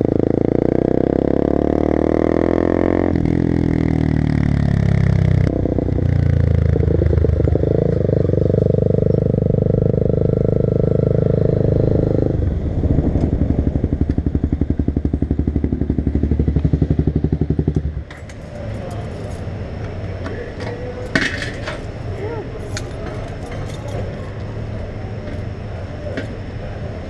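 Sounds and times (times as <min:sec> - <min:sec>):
motorcycle engine slowing to idle: 0:03.2 - 0:21.0.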